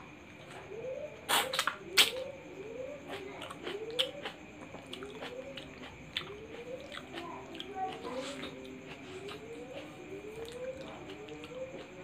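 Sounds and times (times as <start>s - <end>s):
mouth chewing clicks and smacks: 3.1s - 12.0s.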